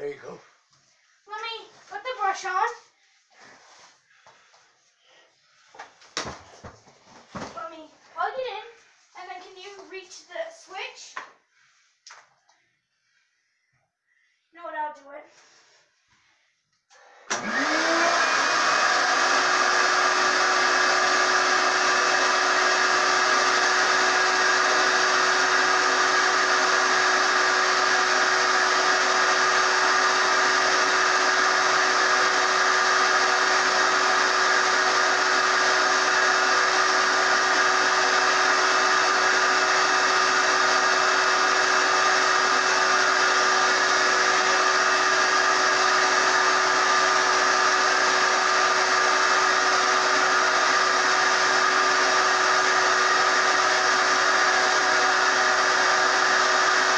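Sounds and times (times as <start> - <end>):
shop vacuum motor whine: 17.0 - 56.9.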